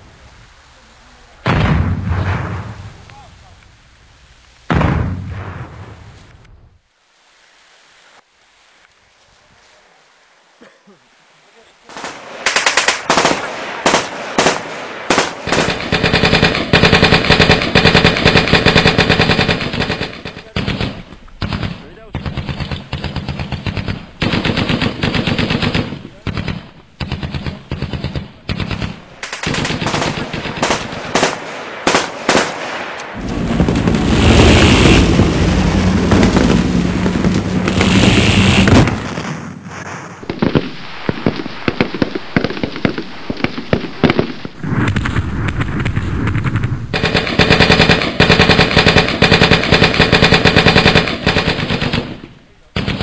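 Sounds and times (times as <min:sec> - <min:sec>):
airsoft rifles firing: 0:11.9 - 0:35.3, 0:35.9 - 0:39.2, 0:40.3 - 0:53.0.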